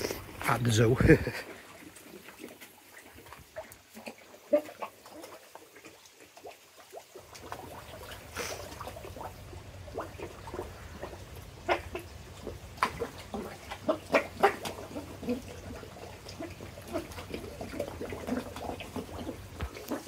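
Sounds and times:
fish gulping with wet pops: 0:00.0 - 0:20.0
small splashes: 0:00.0 - 0:20.0
low steady hum: 0:07.2 - 0:19.7.

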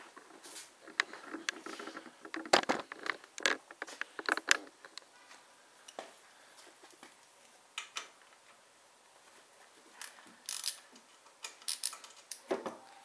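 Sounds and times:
ratchet wrench clicking: 0:10.5 - 0:10.8, 0:11.6 - 0:12.0.

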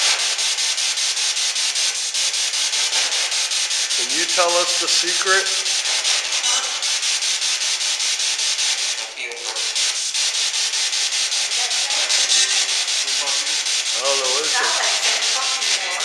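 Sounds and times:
choppy radio static hiss: 0:11.8 - 0:16.0.

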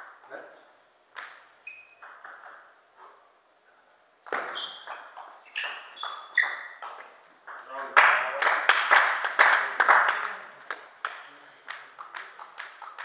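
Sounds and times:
table tennis ball hits: 0:01.1 - 0:02.8, 0:04.2 - 0:07.7, 0:10.2 - 0:13.0
ball bouncing on table: 0:02.0 - 0:02.7, 0:04.2 - 0:07.7.

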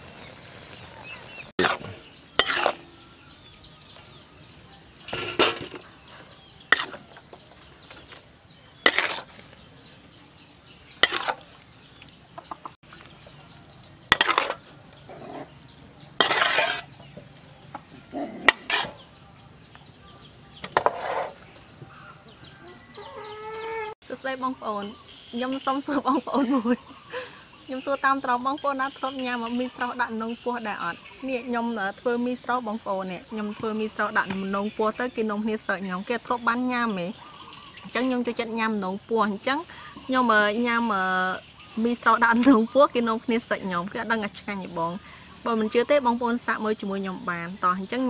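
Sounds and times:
metal utensils scraping a wok: 0:00.0 - 0:03.0, 0:05.0 - 0:08.2, 0:08.8 - 0:09.6, 0:11.0 - 0:11.5, 0:14.0 - 0:17.1, 0:17.9 - 0:19.2, 0:20.6 - 0:21.6
chickens clucking: 0:11.0 - 0:19.1, 0:20.6 - 0:24.0.

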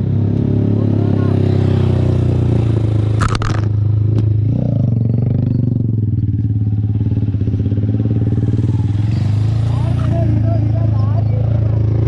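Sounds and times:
sharp click: 0:03.2 - 0:04.3
motorcycle engine idling: 0:03.8 - 0:12.0.

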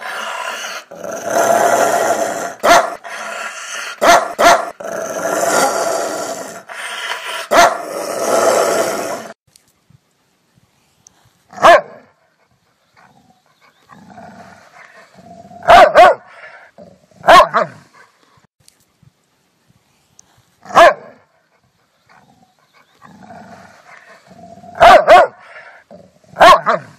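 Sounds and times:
dog growling and snarling: 0:00.0 - 0:09.4, 0:13.0 - 0:18.0, 0:22.1 - 0:26.9
dog barking: 0:02.6 - 0:04.8, 0:07.3 - 0:07.9, 0:11.6 - 0:12.2, 0:15.6 - 0:16.6, 0:17.2 - 0:17.8, 0:20.7 - 0:21.3, 0:24.7 - 0:25.7, 0:26.4 - 0:26.9.

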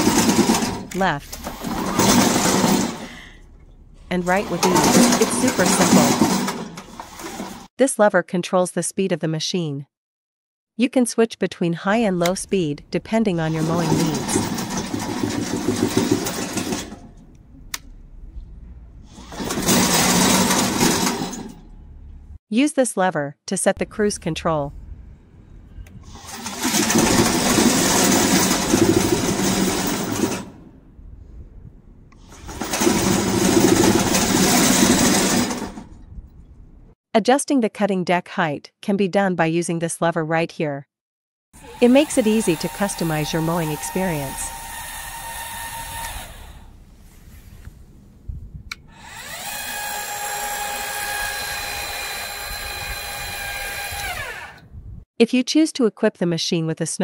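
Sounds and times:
electric motors with mechanical rattle: 0:00.0 - 0:07.7, 0:13.3 - 0:18.3, 0:19.0 - 0:22.2, 0:25.8 - 0:30.6, 0:32.2 - 0:36.1, 0:41.6 - 0:47.8, 0:48.8 - 0:54.7
electric actuator motor whine: 0:41.6 - 0:47.0, 0:48.7 - 0:54.7.

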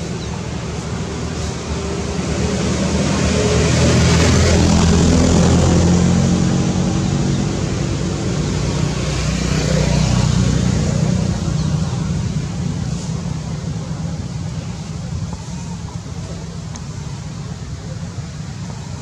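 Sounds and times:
motor engine droning: 0:00.0 - 0:19.0.

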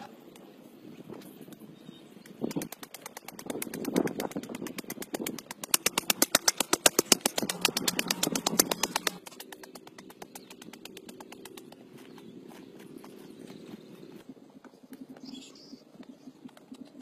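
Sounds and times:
small engine running: 0:02.6 - 0:14.2.

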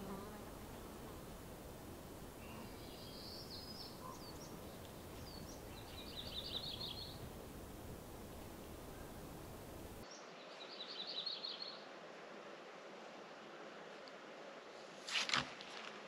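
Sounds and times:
faint outdoor hiss: 0:00.0 - 0:16.0
small birds calling: 0:02.4 - 0:07.4.

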